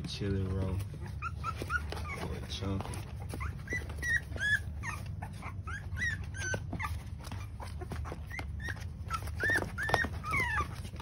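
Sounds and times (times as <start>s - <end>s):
puppies whimpering and squeaking: 0.0s - 11.0s.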